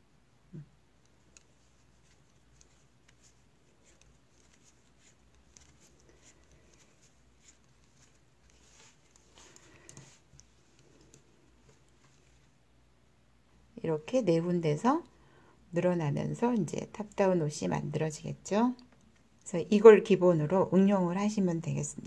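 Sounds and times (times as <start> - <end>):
knitting needles clicking: 0.5 - 12.4.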